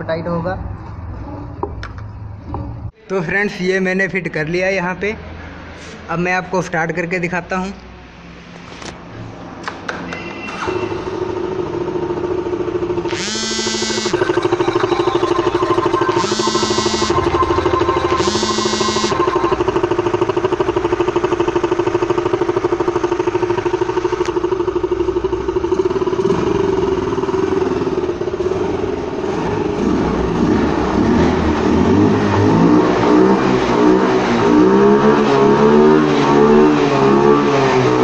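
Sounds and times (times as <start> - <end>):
scooter engine idling and revving: 8.0 - 38.0.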